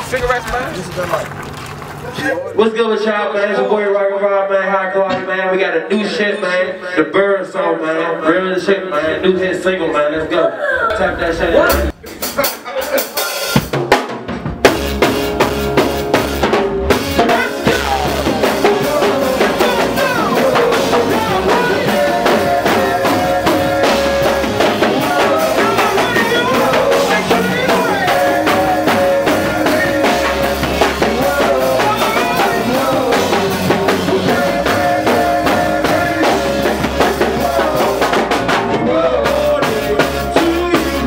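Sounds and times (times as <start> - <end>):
drum kit groove: 11.5 - 41.0
live band playing: 11.5 - 41.0
drum hits: 11.6 - 41.0.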